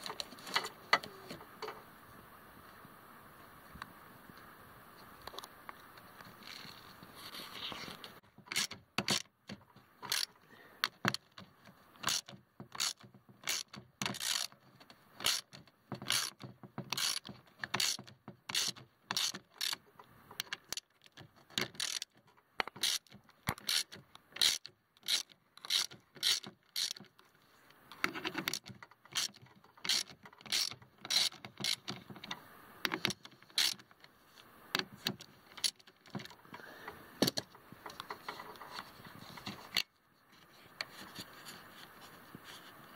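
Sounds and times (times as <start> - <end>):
ratchet wrench clicking: 8.5 - 9.2, 10.0 - 10.3, 12.0 - 14.6, 15.2 - 19.8, 21.6 - 27.0, 28.5 - 31.9, 32.9 - 33.8.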